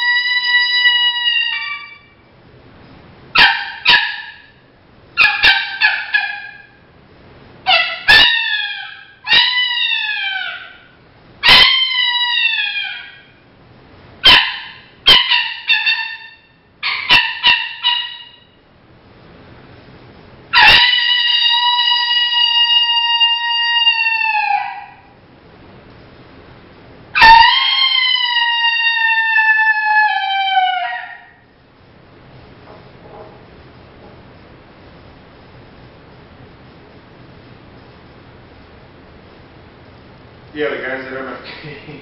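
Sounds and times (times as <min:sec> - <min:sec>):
coyote call barks and yips: 0:00.0 - 0:02.1, 0:03.3 - 0:04.6, 0:05.2 - 0:06.8, 0:07.7 - 0:13.4, 0:14.2 - 0:18.5, 0:20.5 - 0:25.2, 0:27.2 - 0:31.4
coyote call howl: 0:00.0 - 0:02.2, 0:03.4 - 0:04.5, 0:05.2 - 0:06.8, 0:07.7 - 0:13.4, 0:14.2 - 0:18.5, 0:20.5 - 0:25.2, 0:27.2 - 0:31.5.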